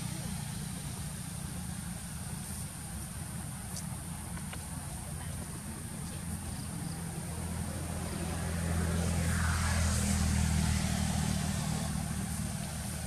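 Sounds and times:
motor engine humming: 0:00.0 - 0:13.0.

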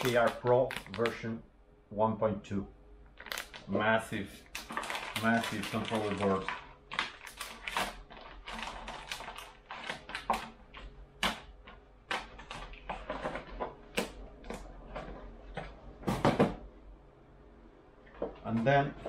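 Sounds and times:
plastic bag crinkling: 0:00.0 - 0:01.3, 0:03.1 - 0:15.6.

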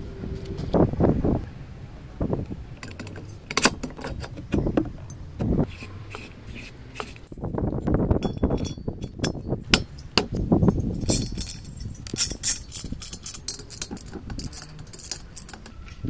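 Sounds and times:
metal knocks and clinks: 0:07.8 - 0:16.0.

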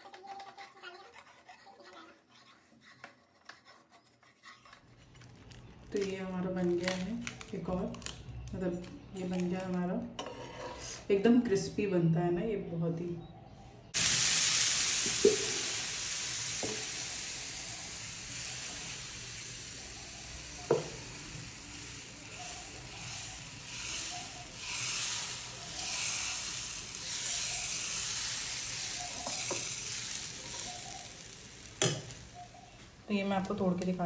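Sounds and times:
batter sizzling on pan: 0:13.9 - 0:34.0
water sizzling on hot pan: 0:14.0 - 0:34.0.

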